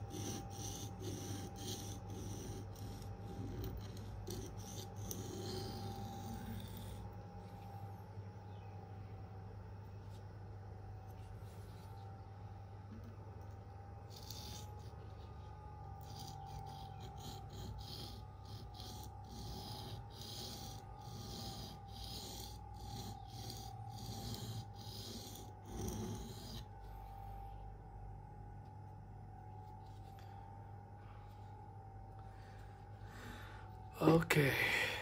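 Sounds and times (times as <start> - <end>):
blade rasping on sharpening plate: 0.0 - 7.0, 16.0 - 26.7.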